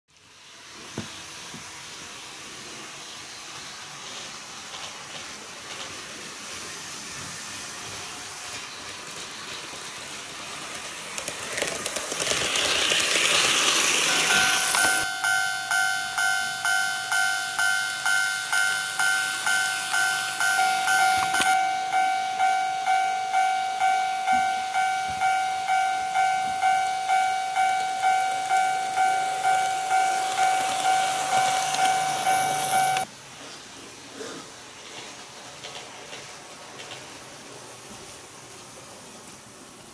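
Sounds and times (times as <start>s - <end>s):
model railcars running on track: 0.2s - 39.9s
crossing warning bell dinging: 13.9s - 33.1s.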